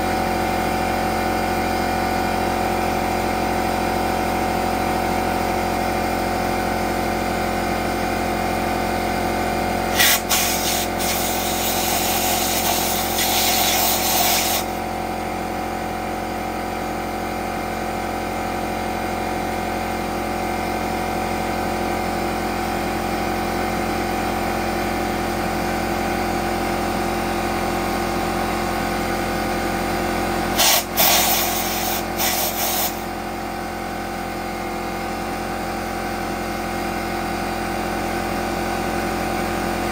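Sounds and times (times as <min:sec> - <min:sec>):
air compressor running: 0:00.0 - 0:39.9
air blowgun hissing blasts: 0:09.9 - 0:14.8, 0:30.6 - 0:33.0.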